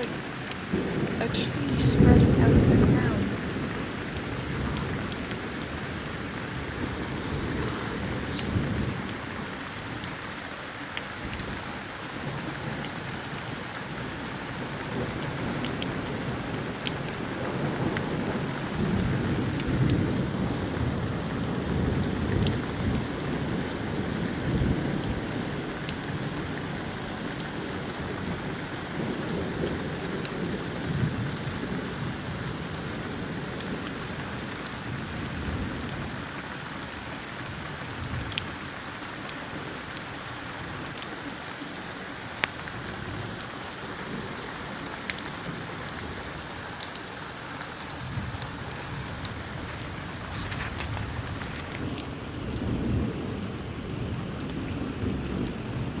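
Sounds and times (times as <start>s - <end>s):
thunder rumbling: 0.0s - 10.0s, 47.7s - 56.0s
steady rain: 0.0s - 56.0s.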